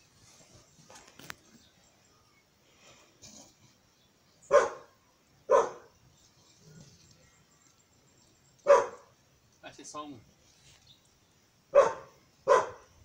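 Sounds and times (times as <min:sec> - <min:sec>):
dog barking: 0:04.5 - 0:04.9, 0:05.5 - 0:05.9, 0:08.6 - 0:09.1, 0:11.7 - 0:12.9.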